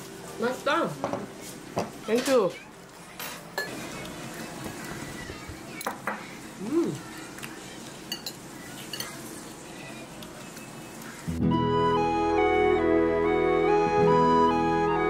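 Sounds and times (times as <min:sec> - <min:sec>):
spoon and dishes clinking: 0:03.1 - 0:03.8, 0:08.0 - 0:09.3.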